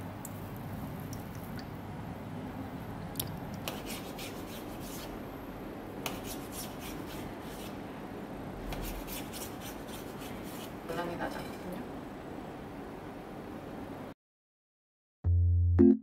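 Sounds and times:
knife scraping on cutting board: 3.7s - 5.1s, 8.7s - 10.7s.

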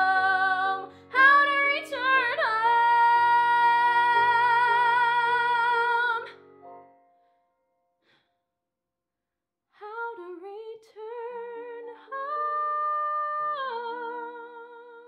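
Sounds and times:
woman singing with vibrato: 0.0s - 6.3s.

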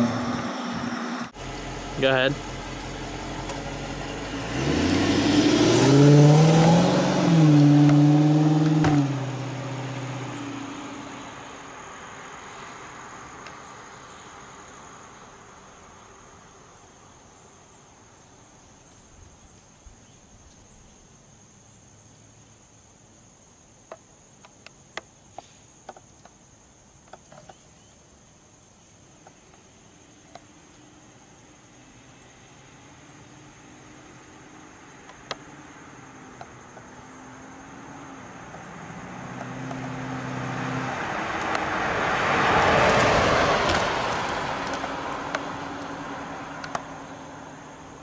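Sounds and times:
car engine driving past: 0.0s - 16.2s, 31.6s - 48.0s
tyre noise: 2.0s - 11.2s
sharp clicks and ticks: 46.6s - 46.8s.

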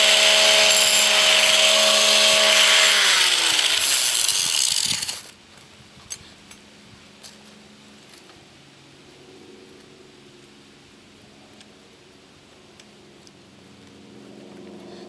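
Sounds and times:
grinder grinding metal: 0.0s - 5.3s
grinder motor spinning down: 0.0s - 5.3s.

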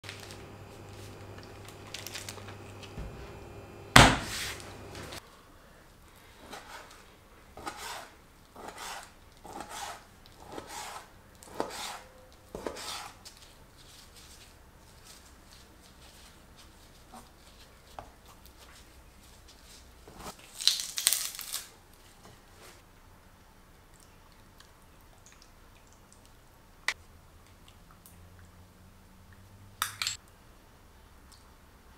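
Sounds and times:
single sharp sound: 3.9s - 5.1s.

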